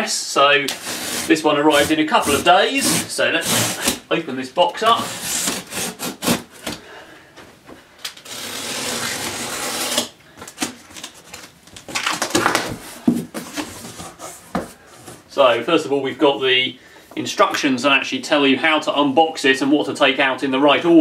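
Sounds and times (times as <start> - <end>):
cardboard scraping and rustling: 0.6 - 4.1, 4.8 - 6.8, 8.2 - 15.3
utility knife slitting packing tape: 0.7 - 4.0, 5.0 - 6.8, 8.1 - 11.2.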